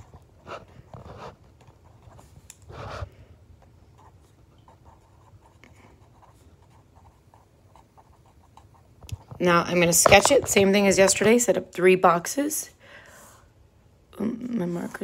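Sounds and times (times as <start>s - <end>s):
pen scratching on paper: 0.0s - 3.2s, 3.9s - 11.4s.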